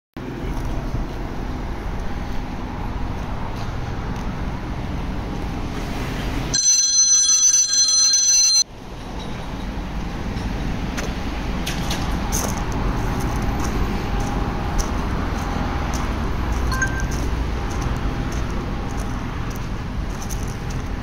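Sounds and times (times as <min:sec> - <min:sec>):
outdoor background noise: 0:00.2 - 0:21.0
loud high ringing tone: 0:06.5 - 0:08.7.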